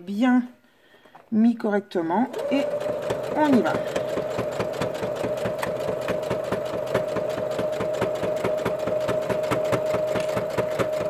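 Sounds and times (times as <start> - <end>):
sewing machine stitching: 2.2 - 11.0.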